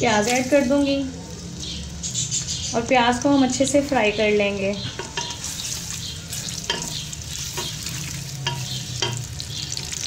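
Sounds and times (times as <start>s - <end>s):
onions sizzling in oil: 0.0s - 2.0s, 2.9s - 10.0s
spatula scraping a metal pot: 5.0s - 9.2s.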